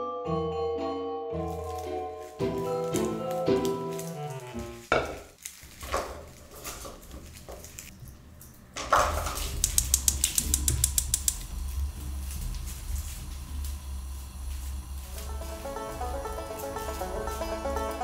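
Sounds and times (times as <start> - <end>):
vegetables rattling in a frying pan: 1.7 - 8.0, 8.6 - 18.0
rapid clicks: 9.4 - 12.7
low hum: 9.8 - 18.0.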